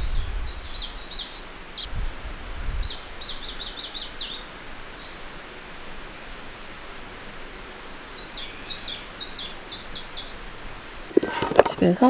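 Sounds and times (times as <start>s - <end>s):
wind rumble on microphone: 0.0s - 5.1s
bird singing: 0.0s - 12.0s
steady outdoor hiss: 0.0s - 12.0s.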